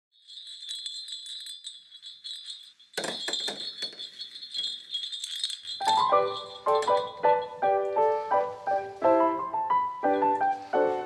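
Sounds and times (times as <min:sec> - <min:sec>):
metal jingle bells on a door: 0:00.1 - 0:08.6
piano music: 0:05.8 - 0:11.0.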